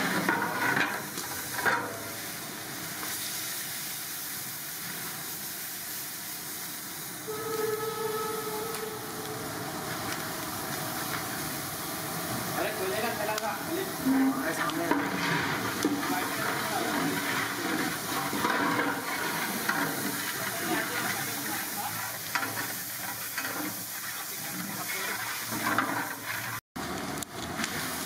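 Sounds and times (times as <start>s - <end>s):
pot of rice boiling: 0.0s - 28.0s
metal ladle scraping a pot: 14.0s - 26.6s.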